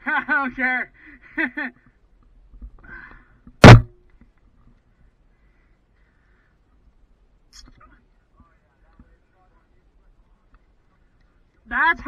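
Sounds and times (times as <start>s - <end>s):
sharp knock with ringing: 3.6s - 4.0s.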